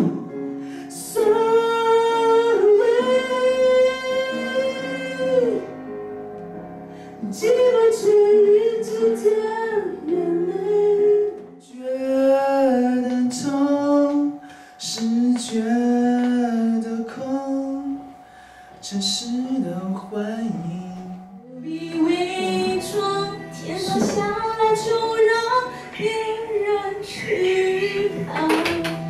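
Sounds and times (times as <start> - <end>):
person singing into microphone: 0.0 - 5.8, 7.2 - 18.2, 18.8 - 29.0
person singing unaccompanied: 18.9 - 29.0.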